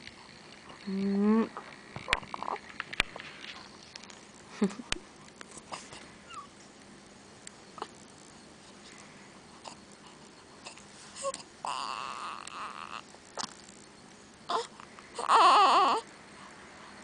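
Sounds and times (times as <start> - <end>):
baby grunting and squeaking: 1.4 - 2.6, 10.6 - 13.0, 14.5 - 16.0.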